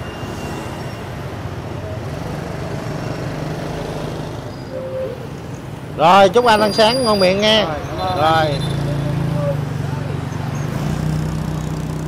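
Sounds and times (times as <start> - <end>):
street traffic noise: 0.0 - 12.0
engine passing by: 7.6 - 12.0.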